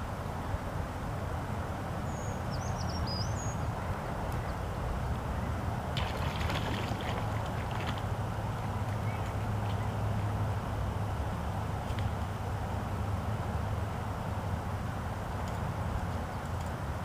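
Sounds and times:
bird chirps: 2.1s - 3.7s
low steady rumble: 3.4s - 17.0s
fish splashing in water: 6.0s - 10.0s.

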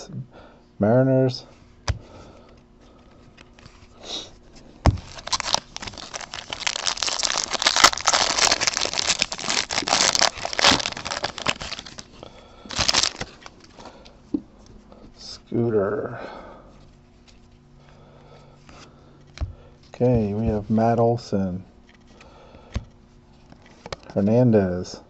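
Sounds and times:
foil wrapper tearing and crinkling: 5.0s - 13.6s.

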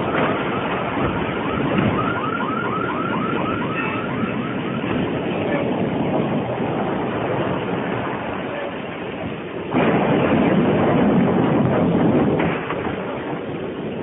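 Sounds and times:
steady rumbling noise: 0.0s - 14.0s
electronic alarm siren yelping: 0.9s - 4.9s.

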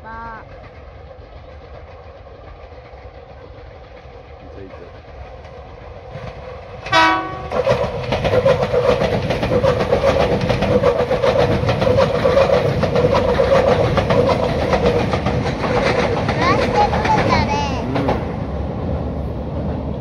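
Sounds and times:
electric train running past: 0.0s - 20.0s
wheels clacking over rail joints: 0.4s - 18.6s
train horn blast: 6.9s - 7.6s.

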